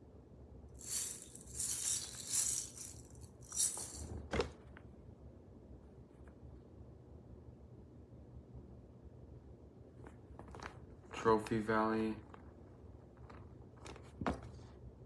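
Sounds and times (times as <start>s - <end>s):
plastic shaker rattling: 0.8s - 4.3s.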